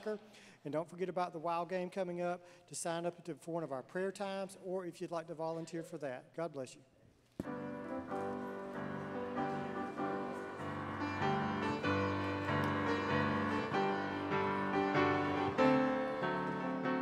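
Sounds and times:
piano playing chords and melody: 7.4s - 17.0s.

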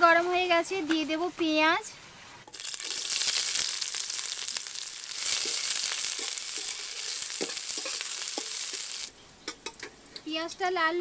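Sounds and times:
onions sizzling in oil: 2.5s - 9.2s
spatula scraping pan: 5.2s - 9.1s.

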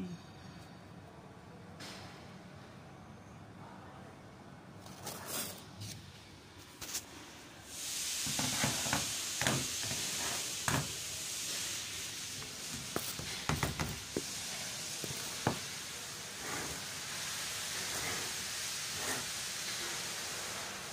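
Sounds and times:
steady hiss: 6.8s - 20.9s.

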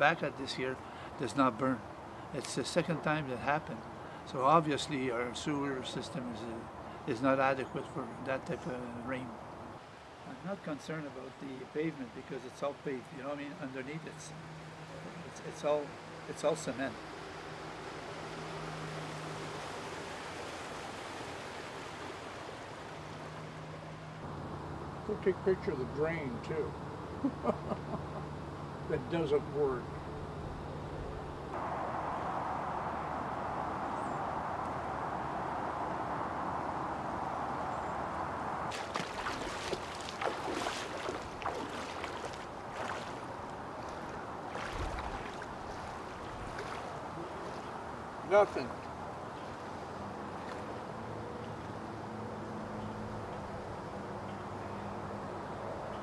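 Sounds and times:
wind and water rushing: 0.0s - 24.3s, 30.1s - 51.6s
feet wading through shallow water: 38.7s - 48.0s.

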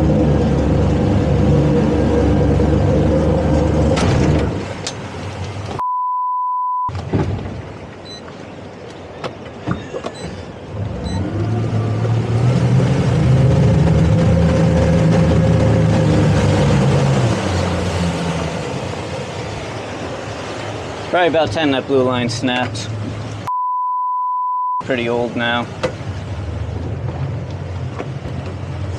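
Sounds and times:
outboard motors running hard: 0.0s - 5.6s, 10.7s - 23.4s, 25.0s - 28.9s
censor bleep: 5.8s - 6.9s, 8.0s - 8.2s, 11.0s - 11.2s, 23.5s - 24.8s.

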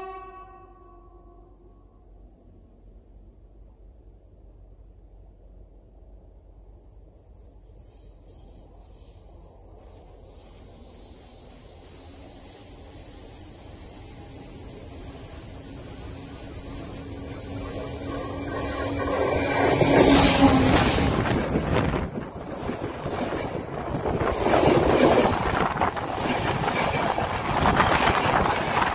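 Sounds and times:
train passing overhead: 0.0s - 28.9s
hiss from the rails: 6.5s - 28.9s
loud wheel noise: 11.6s - 28.9s.

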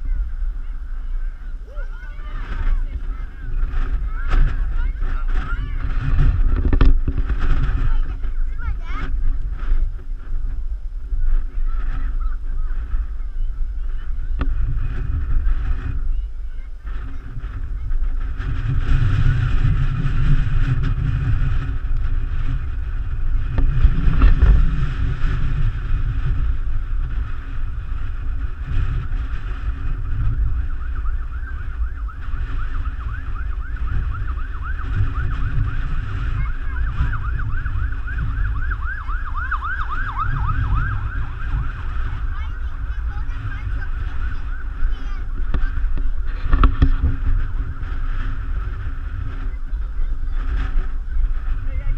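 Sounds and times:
wind rumbling on microphone: 0.0s - 51.9s
emergency siren wailing and yelping: 29.0s - 45.6s.

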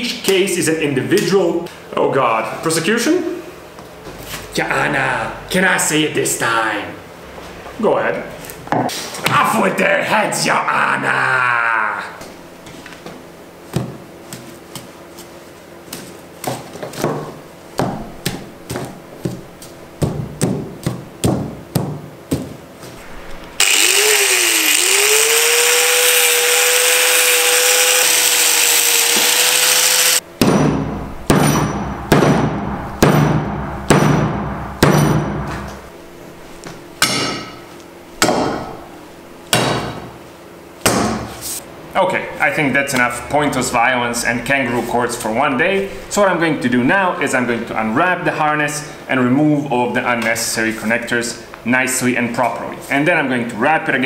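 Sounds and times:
angle grinder whining: 23.5s - 30.2s.

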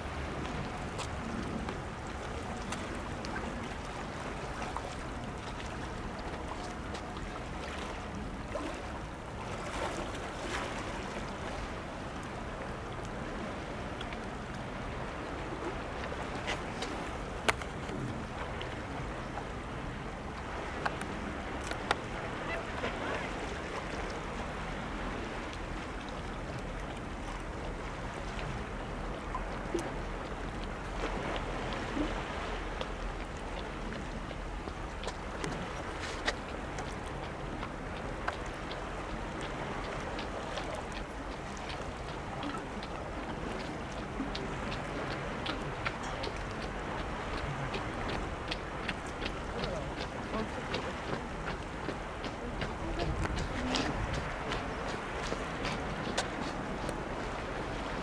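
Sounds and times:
sea water washing among rocks: 0.0s - 58.0s
wind: 0.0s - 58.0s
faint clicks: 20.4s - 22.1s.

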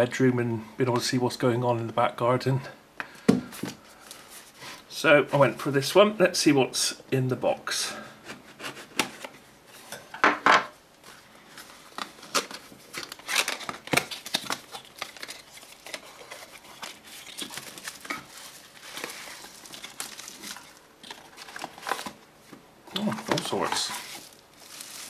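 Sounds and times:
card flaps and plastic rustling: 11.0s - 25.0s.

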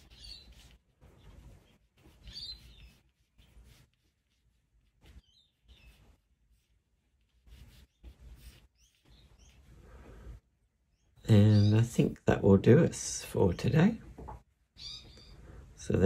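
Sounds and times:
pencil strokes on paper: 0.0s - 10.4s.

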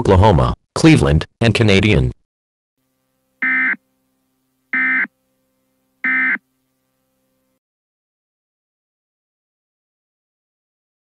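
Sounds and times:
faint steady hum: 2.8s - 7.6s.

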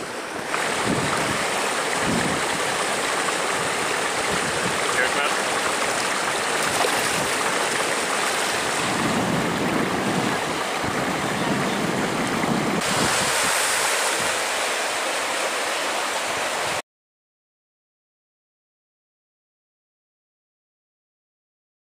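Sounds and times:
river water rushing over rocks: 0.0s - 16.8s.

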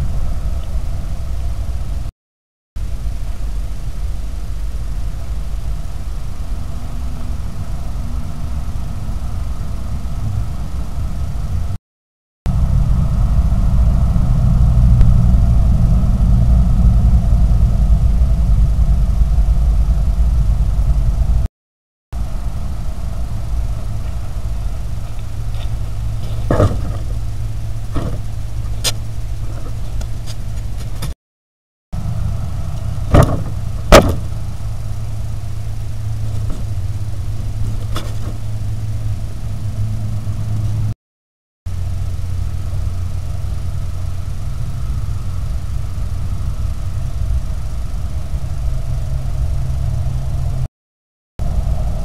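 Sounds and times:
faint hum: 0.0s - 2.1s, 2.8s - 11.8s, 12.5s - 21.5s, 22.2s - 31.2s, 32.0s - 41.0s, 41.7s - 50.7s, 51.4s - 52.0s
steady low rumble: 0.0s - 2.1s, 2.8s - 11.8s, 12.5s - 21.5s, 22.2s - 31.2s, 32.0s - 41.0s, 41.7s - 50.7s, 51.4s - 52.0s
animal knocking against camera: 28.0s - 28.2s.

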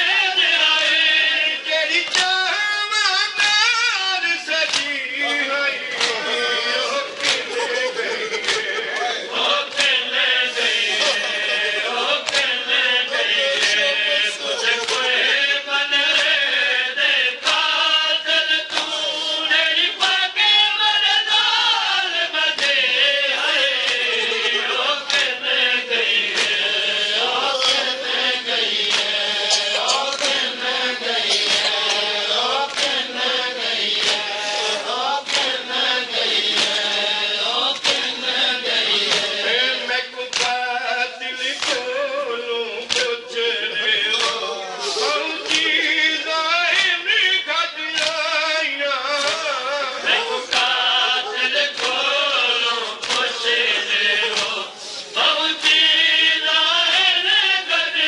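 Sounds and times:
men chanting in unison: 0.0s - 58.0s
hands slapping chests: 4.7s - 5.0s, 5.9s - 6.2s, 7.2s - 7.5s, 12.2s - 12.6s, 14.8s - 15.1s, 18.7s - 18.9s, 22.5s - 22.8s, 23.8s - 24.1s, 26.3s - 26.6s, 28.7s - 30.5s, 31.2s - 33.0s, 33.9s - 34.4s, 35.2s - 35.6s, 36.4s - 36.9s, 37.6s - 38.1s, 40.3s - 40.6s, 41.6s - 41.9s, 42.9s - 43.1s, 44.2s - 44.4s, 45.5s - 45.7s, 46.7s - 47.0s, 48.0s - 48.2s, 49.2s - 49.5s, 50.5s - 50.8s, 51.7s - 52.1s, 52.9s - 53.5s, 54.3s - 54.6s.

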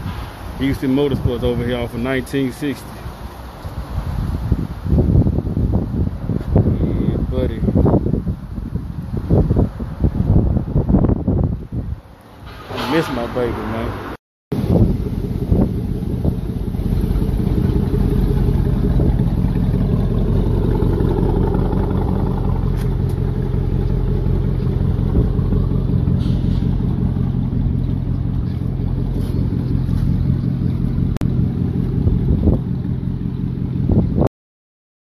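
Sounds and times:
truck engine idling: 14.6s - 34.2s.

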